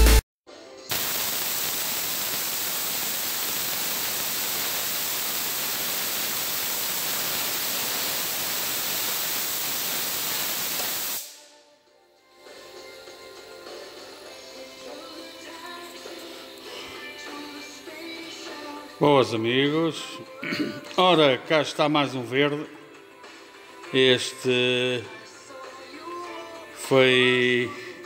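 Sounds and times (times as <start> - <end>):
compressed air hissing from tank: 0.9 - 11.5.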